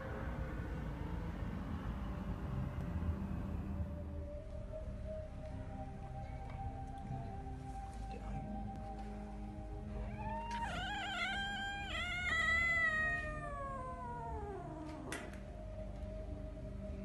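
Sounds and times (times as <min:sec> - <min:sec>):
cat yowling: 0:10.0 - 0:15.4.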